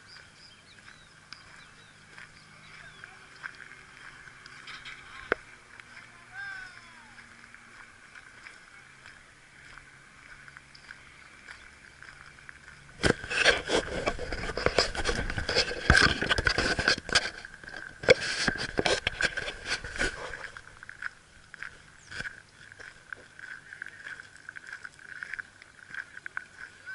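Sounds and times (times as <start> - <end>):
wheels rolling over gravel: 0.0 - 26.9.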